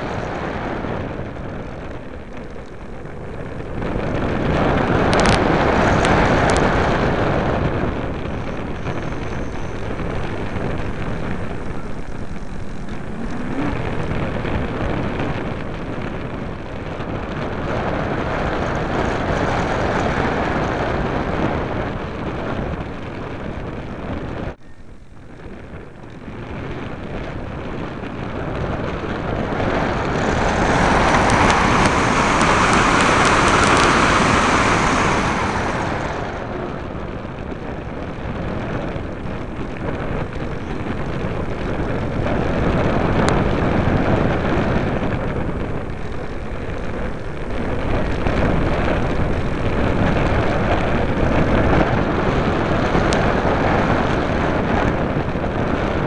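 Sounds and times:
model airplane motor: 0:00.0 - 0:21.2
rushing wind: 0:00.0 - 0:56.0.

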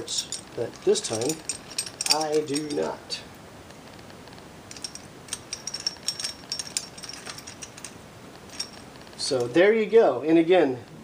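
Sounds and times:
metal clicks and clinks: 0:00.1 - 0:03.0, 0:04.7 - 0:09.6.

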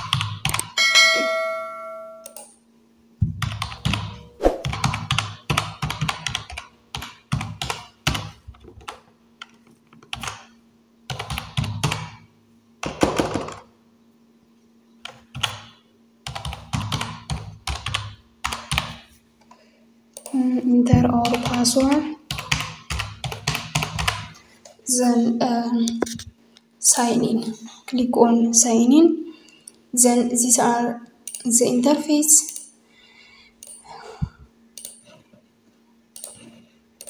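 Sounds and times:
typing on computer keyboard: 0:00.0 - 0:00.8, 0:03.4 - 0:10.5, 0:11.1 - 0:12.2, 0:15.0 - 0:19.0, 0:21.2 - 0:24.3
faint steady hum: 0:00.0 - 0:37.0.

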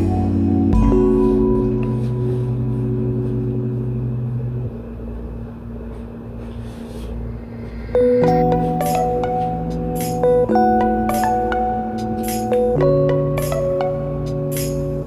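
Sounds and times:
ringing bell-like notes: 0:00.0 - 0:04.6, 0:07.7 - 0:15.0
held low chords: 0:00.0 - 0:15.0.

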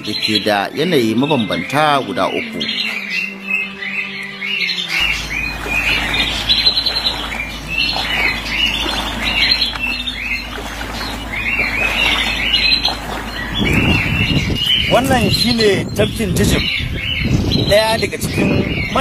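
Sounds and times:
birds squawking and chirping: 0:00.0 - 0:19.0
steady low rumble: 0:05.0 - 0:19.0.

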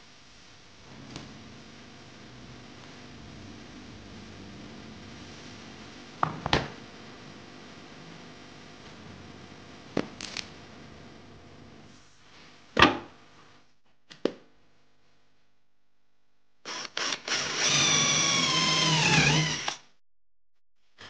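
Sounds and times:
electric drill boring into wood: 0:16.6 - 0:19.9.

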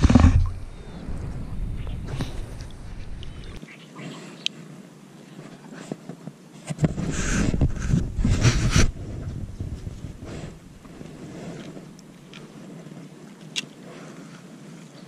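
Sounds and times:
wind rumble on microphone: 0:00.0 - 0:03.6, 0:06.7 - 0:13.3
clothing rustling against microphone: 0:04.0 - 0:15.0.

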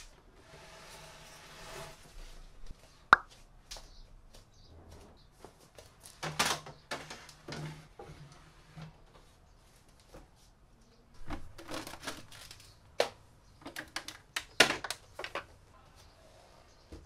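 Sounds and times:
table scraping rustle: 0:00.4 - 0:02.5, 0:06.9 - 0:09.0.

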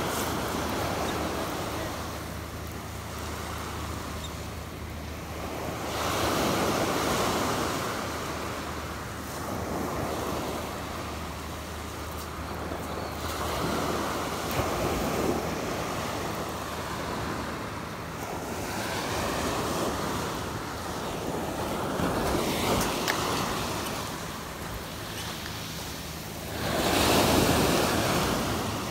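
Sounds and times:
waves breaking on pebble beach: 0:00.0 - 0:04.0.

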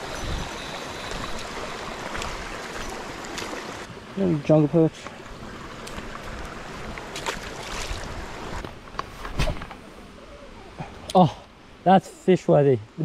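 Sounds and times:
rocky creek rushing: 0:00.0 - 0:08.9.

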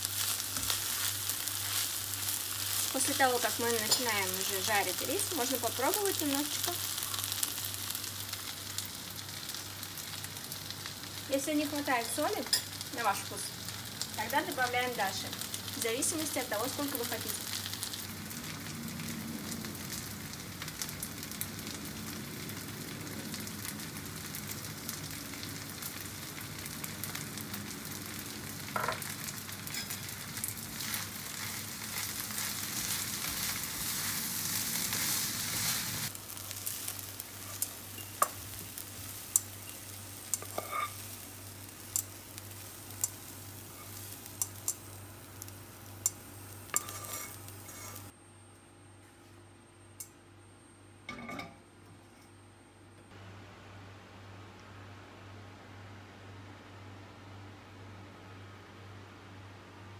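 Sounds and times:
rice sizzling in a frying pan: 0:00.0 - 0:48.2
spatula scraping a pan: 0:40.4 - 0:41.1, 0:46.7 - 0:48.1.

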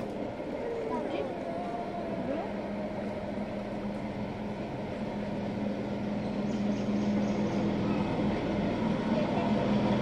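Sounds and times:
steady mechanical drone: 0:00.0 - 0:10.0.

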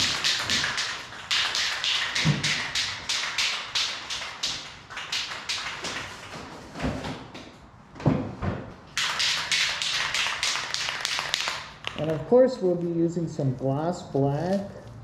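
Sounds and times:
spray can ball rattling: 0:00.0 - 0:06.3, 0:09.0 - 0:12.2.

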